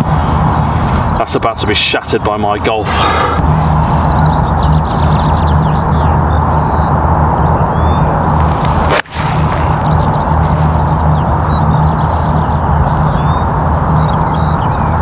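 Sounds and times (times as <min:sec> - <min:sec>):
rushing background noise: 0:00.0 - 0:15.0
golf club striking ball: 0:08.4 - 0:11.6.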